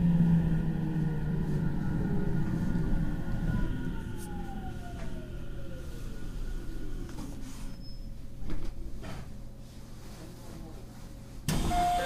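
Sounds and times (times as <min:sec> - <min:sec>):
low running rumble: 0:00.0 - 0:09.7
train motor whine: 0:11.5 - 0:12.0.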